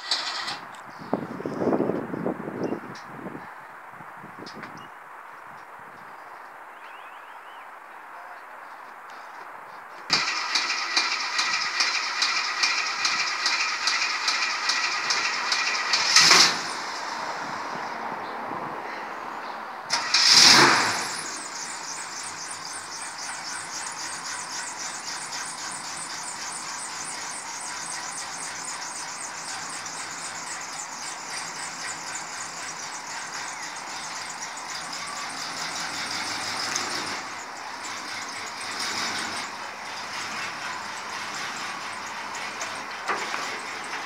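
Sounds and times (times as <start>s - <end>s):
truck engine starting and idling: 0.0s - 1.1s, 10.1s - 18.4s, 19.9s - 44.0s.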